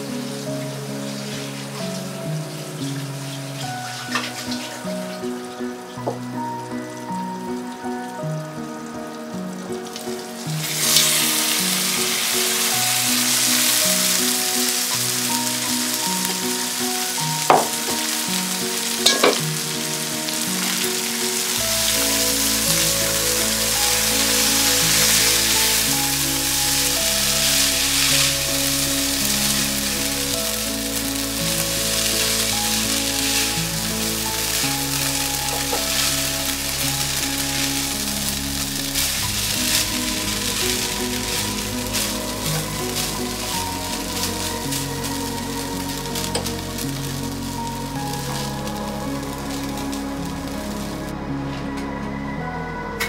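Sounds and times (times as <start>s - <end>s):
soft background music: 0.0s - 53.0s
food sizzling in oil in a pan: 9.4s - 51.0s.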